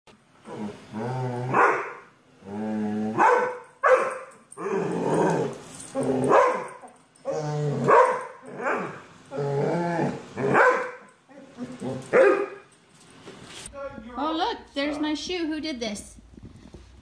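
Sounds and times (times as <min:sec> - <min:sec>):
dog growling and barking: 0:00.4 - 0:12.6.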